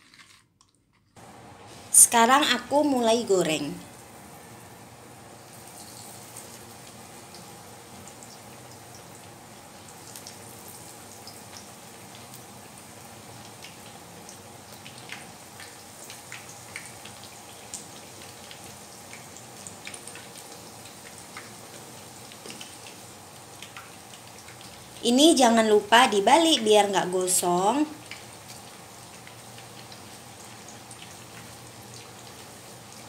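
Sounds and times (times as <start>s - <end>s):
oil crackling and popping: 0.0s - 1.1s, 5.5s - 25.0s, 27.9s - 33.0s
food frying in hot oil: 1.2s - 33.0s.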